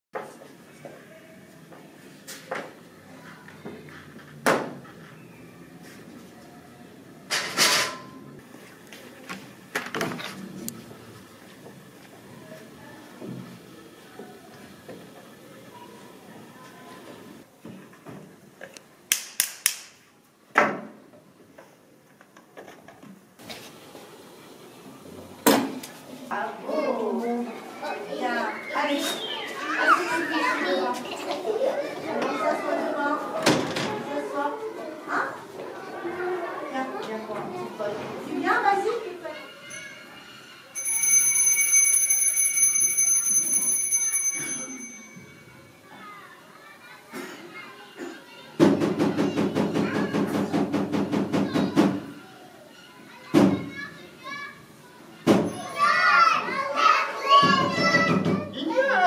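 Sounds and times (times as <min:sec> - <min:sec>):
children's voices: 0:00.6 - 0:07.2, 0:10.6 - 0:17.4, 0:25.8 - 0:40.7, 0:44.3 - 0:59.0
shrill bell ringing: 0:39.4 - 0:46.2.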